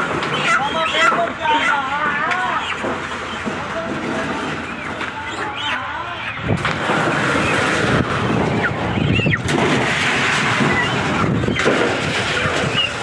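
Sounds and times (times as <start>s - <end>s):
chickens squawking: 0.0s - 13.0s
chickens flapping wings: 6.4s - 13.0s.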